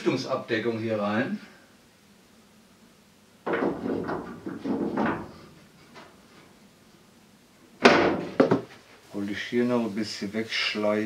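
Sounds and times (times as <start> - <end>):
sharp wooden knock: 7.8 - 8.7.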